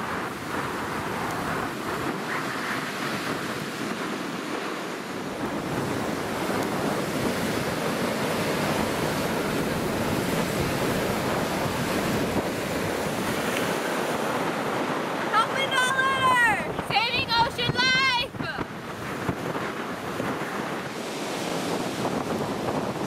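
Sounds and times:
ocean surf breaking: 0.0s - 23.0s
wind buffeting microphone: 0.0s - 23.0s.

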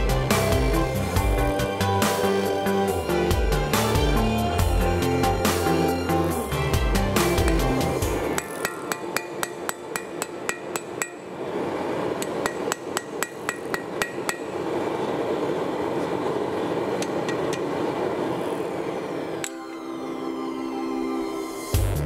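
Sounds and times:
steady rushing noise: 0.0s - 20.2s
hammer striking metal on anvil: 7.3s - 11.4s, 12.2s - 14.6s.

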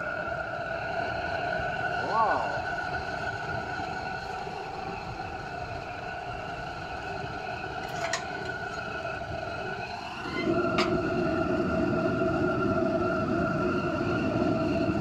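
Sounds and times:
forge burner rushing: 0.0s - 15.0s
steady whine: 0.0s - 15.0s.

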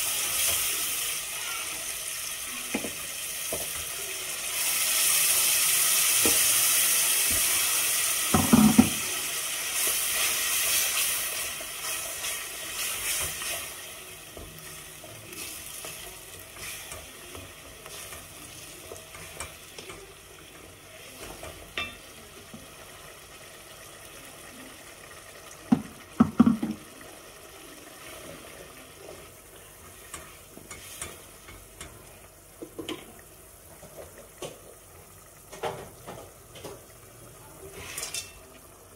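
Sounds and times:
sauce sizzling and bubbling in pot: 0.0s - 38.9s
wooden spoon knocking pot: 8.3s - 9.0s, 25.7s - 26.8s.

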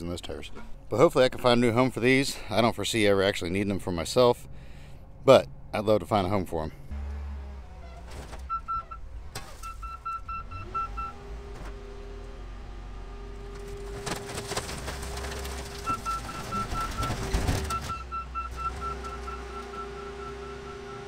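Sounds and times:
diesel engine rumble: 0.0s - 21.0s
back-up alarm beeping: 8.4s - 9.0s, 9.6s - 11.3s, 15.8s - 21.0s
metal cracking: 13.4s - 18.0s.

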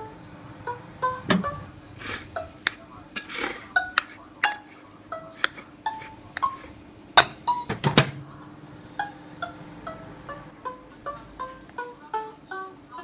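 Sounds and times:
faint steady hum: 0.0s - 13.0s
metal spoon clinking on ceramic bowl: 3.2s - 4.8s.

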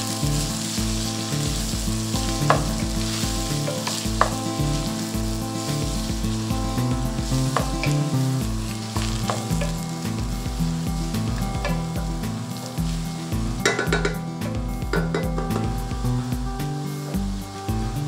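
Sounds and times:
lentils sizzling in oil: 0.0s - 18.0s
spatula knocking against pot: 13.6s - 14.2s.

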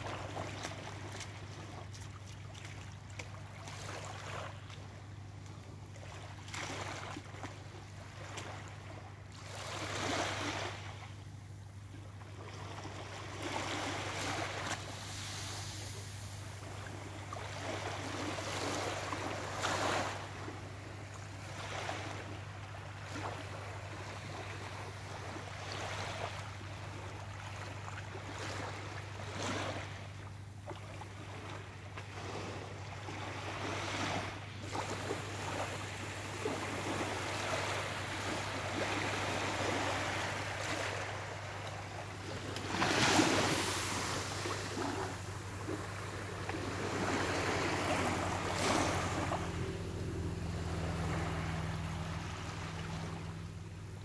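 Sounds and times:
small waves lapping on sand: 0.0s - 54.0s
steady low hum: 26.3s - 54.0s.

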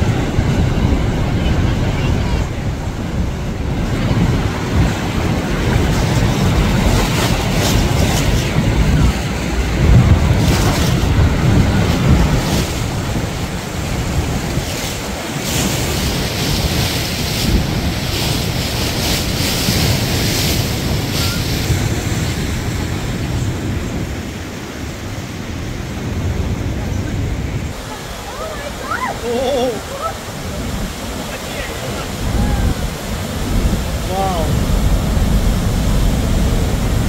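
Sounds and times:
waterfall and whitewater rushing: 0.0s - 37.0s
wind buffeting microphone: 0.0s - 37.0s.

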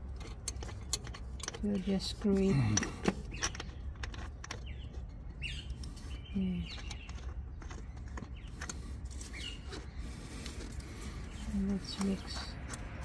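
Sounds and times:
fuel filter clicks and scrapes: 0.0s - 13.0s.

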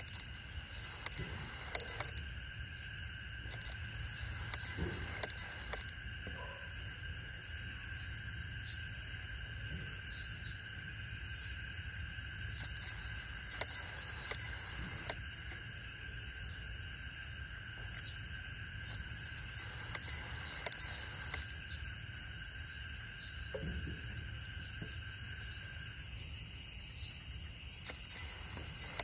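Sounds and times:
faint clicks: 0.0s - 2.4s, 3.4s - 6.0s, 12.4s - 15.7s, 17.8s - 21.8s, 27.7s - 29.0s
insects trilling: 0.0s - 29.0s.

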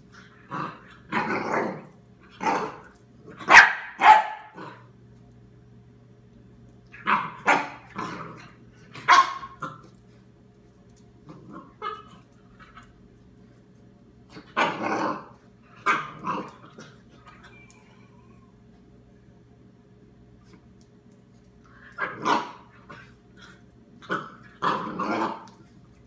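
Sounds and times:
puppy barking: 3.4s - 4.6s, 7.0s - 7.9s, 9.0s - 9.6s.

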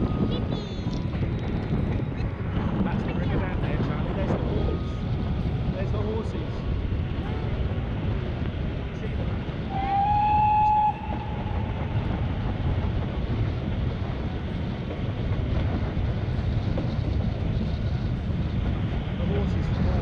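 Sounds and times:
train carriages rumbling on track: 0.0s - 20.0s
steam locomotive whistle: 9.7s - 11.7s.

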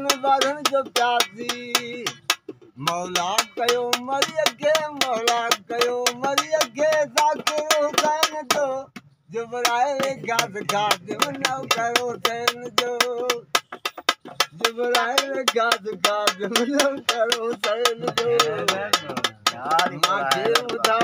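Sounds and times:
fast clicking beat: 0.0s - 21.0s.

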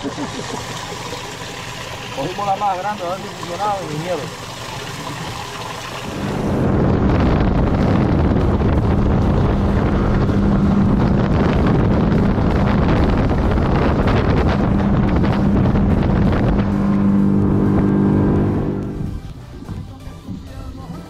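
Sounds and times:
water rushing past hull: 0.0s - 19.7s
motorboat engine drone: 0.0s - 20.8s
wind buffeting microphone: 6.1s - 19.8s
music: 7.5s - 21.0s.

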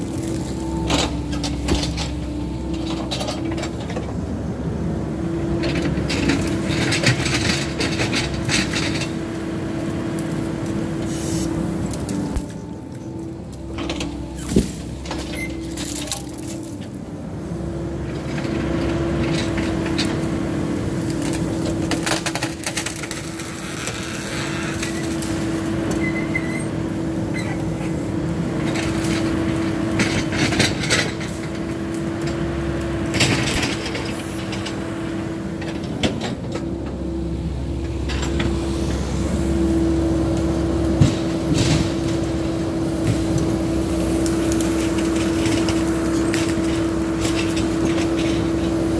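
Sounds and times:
excavator engine and hydraulics hum: 0.0s - 48.9s.

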